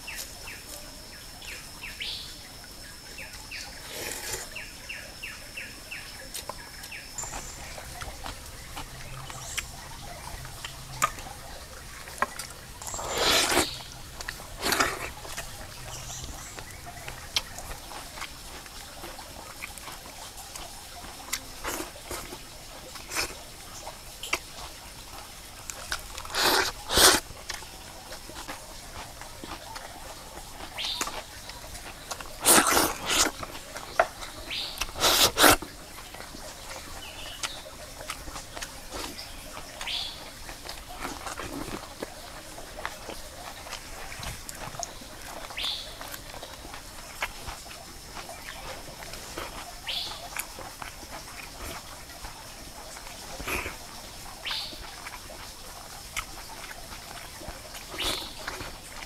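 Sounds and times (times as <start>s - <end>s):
person chewing food: 3.2s - 5.4s, 6.2s - 59.0s
loud mouth noises: 26.1s - 27.2s, 34.8s - 35.7s.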